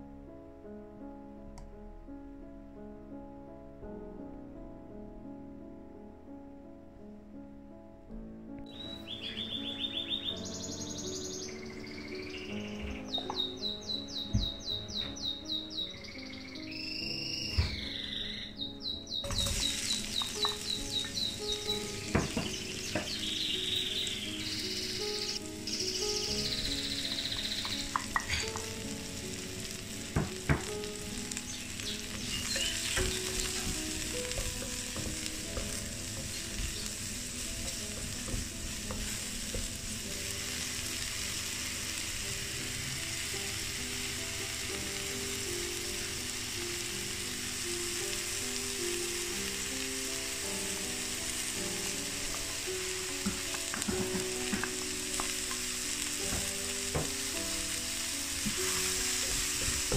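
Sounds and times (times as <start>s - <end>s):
vegetables sizzling in a frying pan: 8.7s - 59.9s
utensil knocks: 12.8s - 13.6s, 19.3s - 23.3s, 27.4s - 28.8s, 30.1s - 30.9s, 31.7s - 39.9s, 53.1s - 55.6s, 56.2s - 57.2s.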